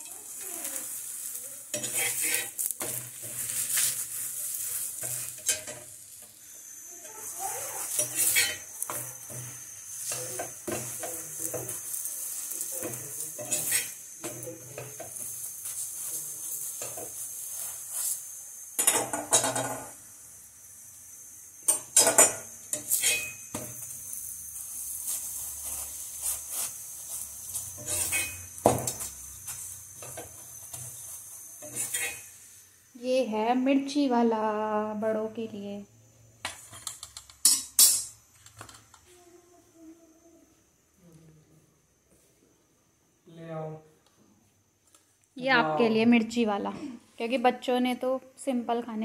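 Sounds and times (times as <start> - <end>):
flatbread sizzling: 0.0 - 34.0, 34.9 - 39.3
spoon clinking and scraping on pan: 0.3 - 5.9, 7.8 - 17.8, 21.7 - 24.0, 25.1 - 29.2, 30.0 - 32.3.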